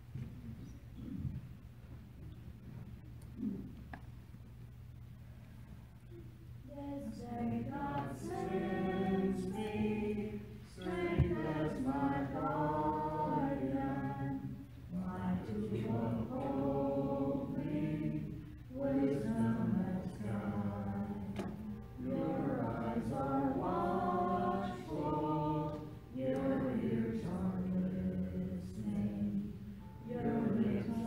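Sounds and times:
choir singing a hymn: 0:06.6 - 0:31.0.

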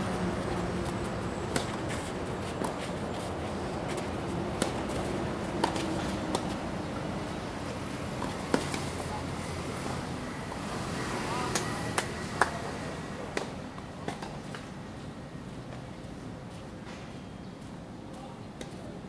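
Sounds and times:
steady background hum: 0:00.0 - 0:19.0
racket hitting tennis ball: 0:01.5 - 0:06.6, 0:08.2 - 0:08.9.

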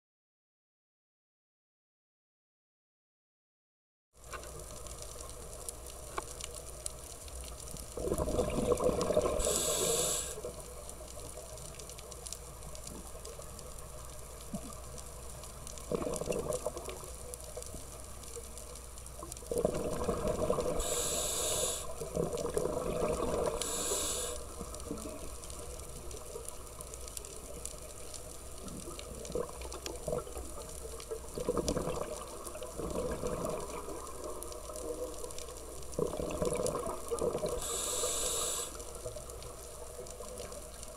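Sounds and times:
bubbling exhalations: 0:08.0 - 0:10.1, 0:15.9 - 0:16.7, 0:19.5 - 0:21.1, 0:21.7 - 0:24.0, 0:31.4 - 0:34.0, 0:36.0 - 0:37.8
diver breathing through a regulator: 0:08.3 - 0:10.5, 0:19.5 - 0:25.1, 0:37.4 - 0:38.9.

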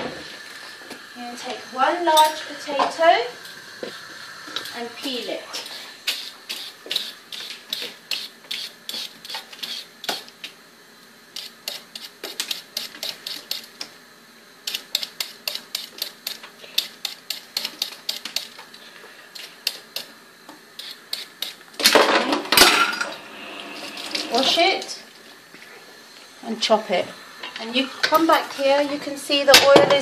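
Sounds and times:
vegetable peeler scraping potato: 0:05.6 - 0:10.2, 0:11.3 - 0:13.8, 0:14.6 - 0:18.6, 0:20.7 - 0:21.7.

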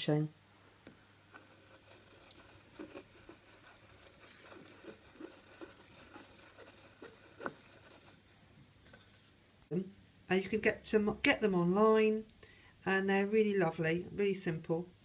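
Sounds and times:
wooden spoon scraping paper: 0:01.2 - 0:09.4.

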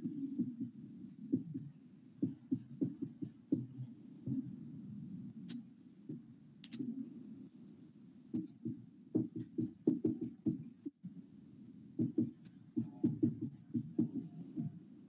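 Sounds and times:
marker pen writing on whiteboard: 0:00.0 - 0:04.5, 0:08.3 - 0:11.0, 0:12.0 - 0:14.8.

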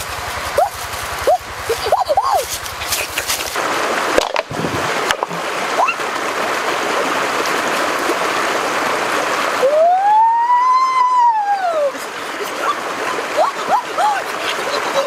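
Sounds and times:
creek water over rocks: 0:00.0 - 0:15.0
sharp knocks: 0:04.2 - 0:05.4.

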